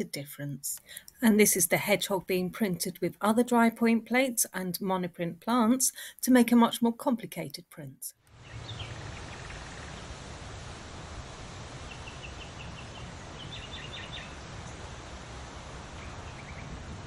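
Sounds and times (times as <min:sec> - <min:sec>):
outdoor background noise: 0:00.0 - 0:17.0
small birds chirping: 0:08.3 - 0:10.2, 0:11.8 - 0:16.9.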